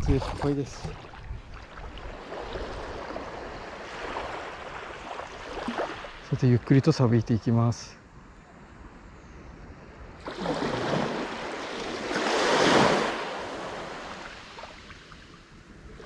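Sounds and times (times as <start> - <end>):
wave washing up sand: 10.2 - 15.2.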